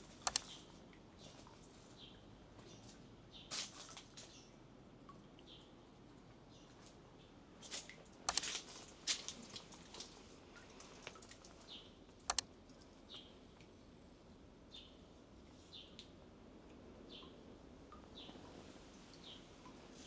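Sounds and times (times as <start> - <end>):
sharp clicks: 0.2 - 0.5, 12.3 - 12.5.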